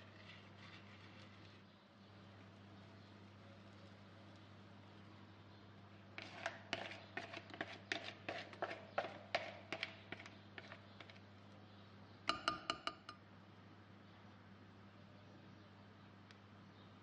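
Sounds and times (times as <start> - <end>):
batter pouring with soft plops: 0.0 - 5.1.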